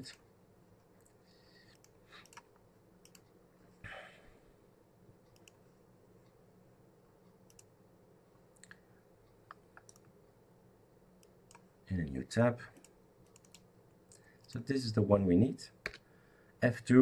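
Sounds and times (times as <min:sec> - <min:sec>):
computer mouse clicks: 0:01.0 - 0:03.4, 0:05.3 - 0:05.6, 0:07.4 - 0:07.7, 0:09.4 - 0:10.2, 0:11.2 - 0:11.7, 0:12.8 - 0:14.6
short breath: 0:16.0 - 0:16.6.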